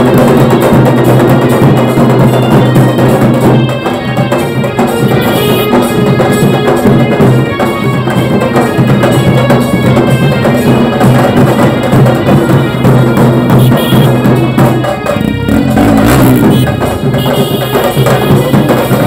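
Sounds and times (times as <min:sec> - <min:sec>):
drums: 0:00.0 - 0:19.0
horns playing melody: 0:03.8 - 0:08.5, 0:12.3 - 0:19.0.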